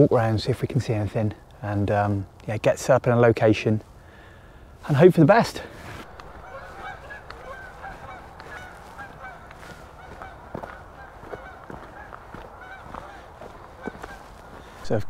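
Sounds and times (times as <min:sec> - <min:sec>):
soft footsteps on path: 0:03.7 - 0:15.0
geese honking: 0:04.9 - 0:14.9.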